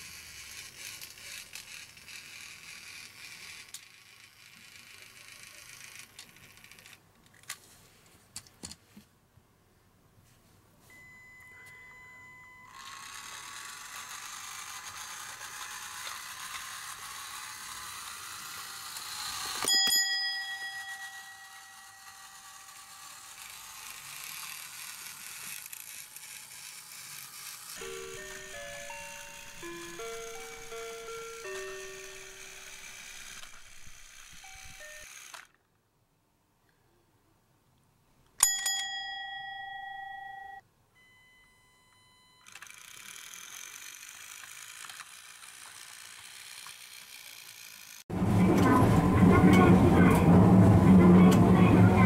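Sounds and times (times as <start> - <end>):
toy train motor whirring: 0.0 - 7.6, 12.6 - 35.7, 42.4 - 48.1
bell ding: 10.9 - 12.7, 19.7 - 22.0, 38.4 - 41.5.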